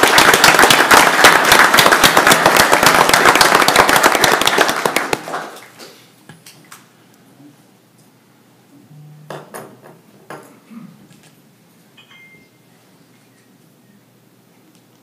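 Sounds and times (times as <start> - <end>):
crowd applauding: 0.0 - 5.9.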